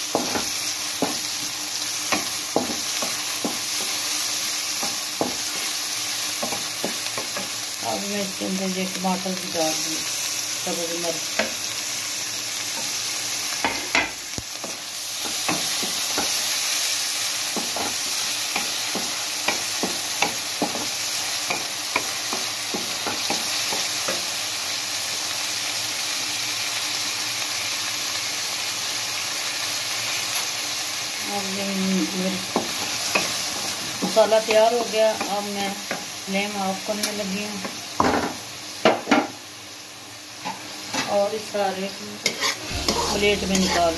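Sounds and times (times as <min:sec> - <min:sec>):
onions and tomatoes sizzling in oil: 0:00.0 - 0:43.9
wooden spatula scraping a pan: 0:42.2 - 0:43.9.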